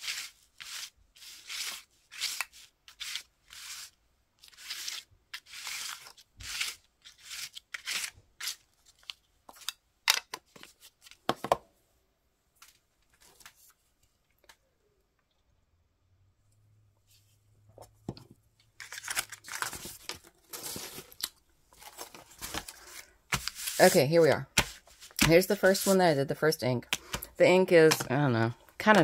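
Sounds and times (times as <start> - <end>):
ink pad rubbing on paper: 23.5 - 24.2.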